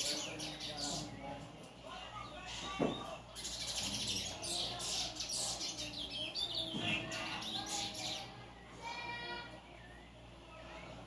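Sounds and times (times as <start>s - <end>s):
finch singing high chirps: 0.0s - 1.3s, 2.9s - 8.5s.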